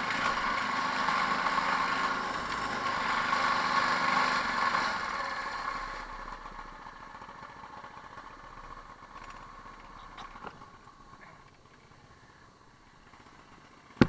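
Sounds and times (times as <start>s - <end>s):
small engine winding down: 0.0s - 8.6s.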